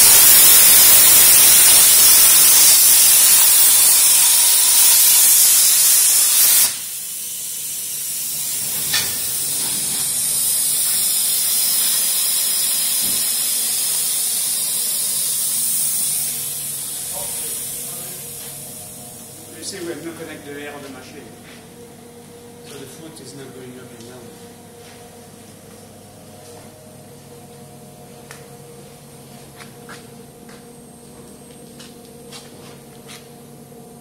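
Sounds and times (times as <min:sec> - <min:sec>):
plasma cutter hissing: 0:00.0 - 0:19.4.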